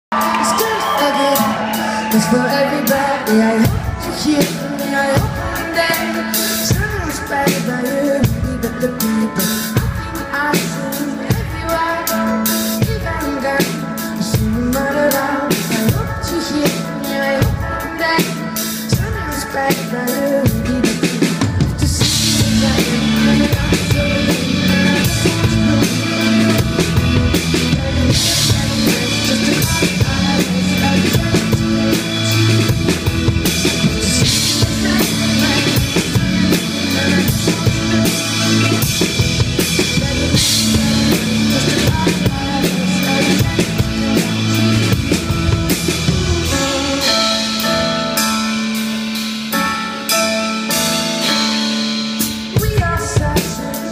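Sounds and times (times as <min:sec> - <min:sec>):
drum kit beat: 0:00.1 - 0:53.9
keyboard chords: 0:00.1 - 0:53.9.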